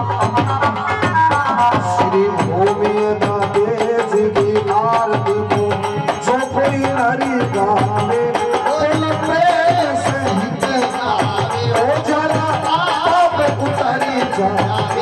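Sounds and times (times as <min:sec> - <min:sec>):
hand drum beat: 0:00.0 - 0:15.0
man singing into a microphone: 0:00.0 - 0:15.0.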